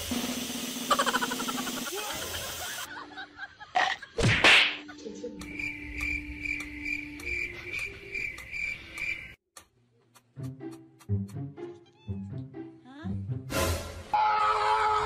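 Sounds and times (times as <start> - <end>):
cricket chirping: 5.4 - 9.4.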